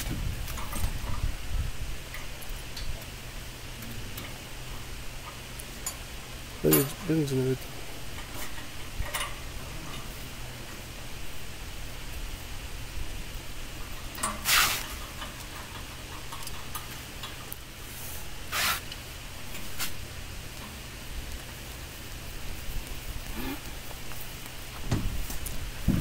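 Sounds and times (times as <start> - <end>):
steady low rumble: 0.0 - 14.0
metal scraping rasps: 13.8 - 20.0.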